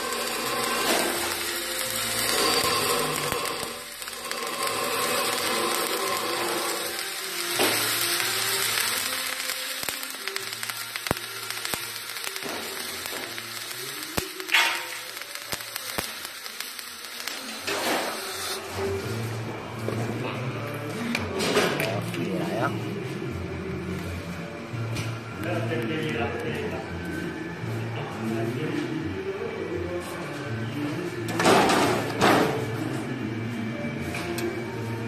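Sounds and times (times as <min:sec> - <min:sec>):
welding arc hissing: 0:00.0 - 0:19.9, 0:31.3 - 0:32.7.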